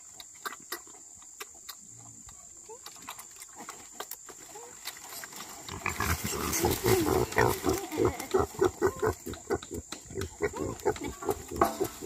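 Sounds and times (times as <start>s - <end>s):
pigs grunting and squealing: 5.6s - 12.0s.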